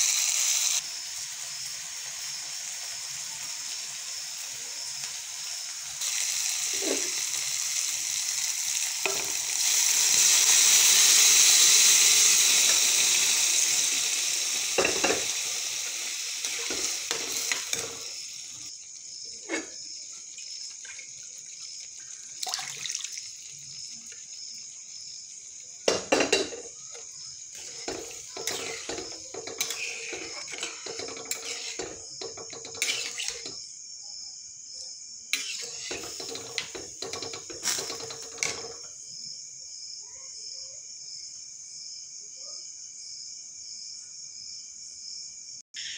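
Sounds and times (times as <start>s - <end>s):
sizzling hiss: 0.0s - 33.7s, 35.3s - 39.0s
spoon scraping a steel pan: 16.4s - 18.1s, 19.4s - 19.8s, 27.6s - 33.6s, 35.4s - 38.8s.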